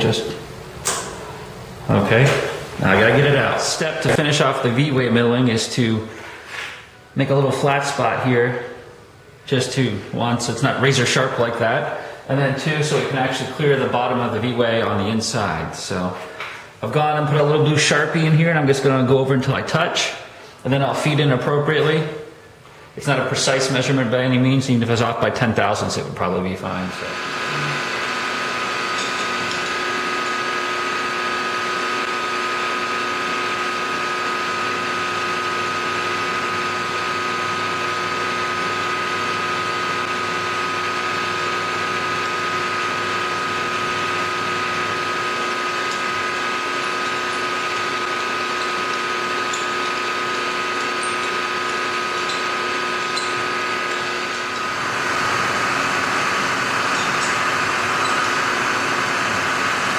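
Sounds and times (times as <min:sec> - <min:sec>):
milling machine motor whine: 0:26.8 - 0:59.9
end mill cutting aluminium: 0:27.0 - 0:59.9.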